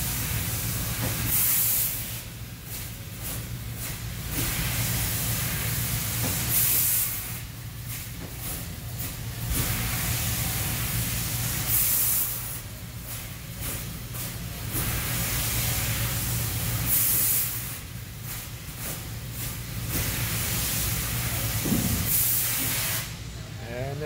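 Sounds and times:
laser cutter gas jet hissing: 0.0s - 2.4s, 3.2s - 8.6s, 9.4s - 23.2s.

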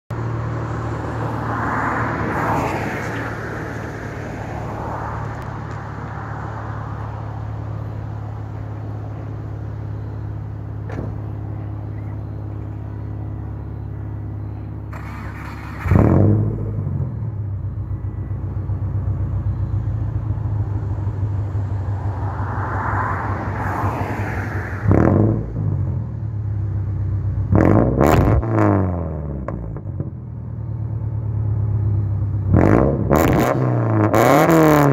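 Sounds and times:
engine revving: 14.9s - 17.9s, 21.9s - 26.1s, 27.4s - 30.1s, 32.4s - 34.9s.

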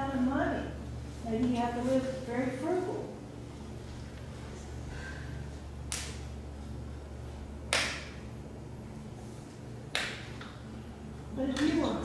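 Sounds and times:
low room hum: 0.0s - 12.0s
hands clapping sharply: 7.7s - 8.2s, 9.9s - 10.5s.

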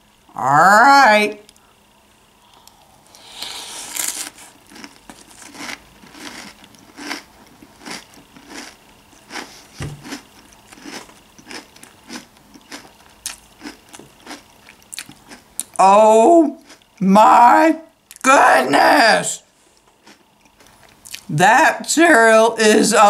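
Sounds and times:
person chewing crunchy cereal: 2.5s - 15.9s, 16.6s - 17.0s, 19.7s - 21.3s.

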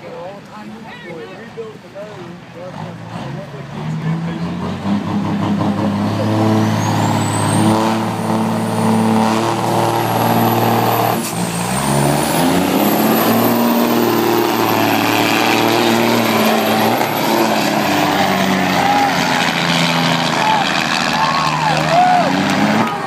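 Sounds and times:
diesel truck engine at full throttle: 1.7s - 23.0s.

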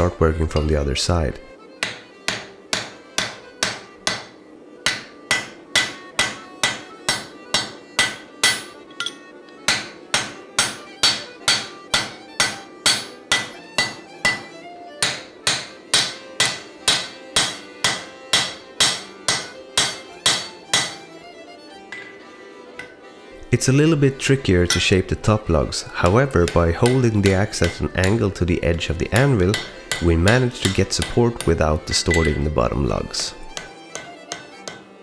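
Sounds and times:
hammer striking hot steel: 1.8s - 21.0s, 21.9s - 22.2s, 22.8s - 23.0s, 24.2s - 32.6s, 33.5s - 34.8s
anvil metallic ring: 4.9s - 15.2s, 21.9s - 22.2s, 24.7s - 25.1s, 31.9s - 32.6s.

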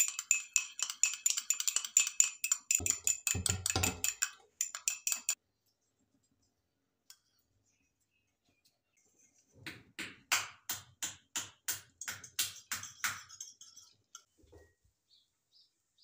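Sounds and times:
fork beating eggs in bowl: 0.0s - 5.4s, 11.9s - 14.3s.

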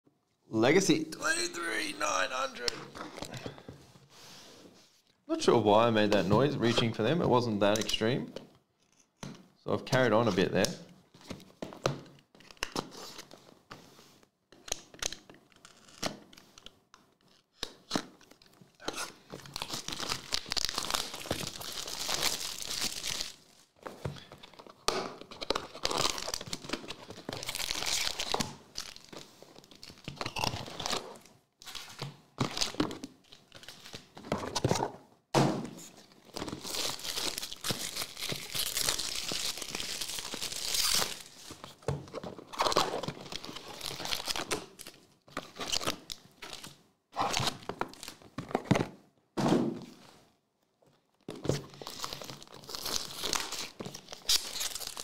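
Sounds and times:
plastic wrap crinkling and tearing: 18.3s - 34.2s, 35.8s - 48.4s, 51.5s - 55.0s.

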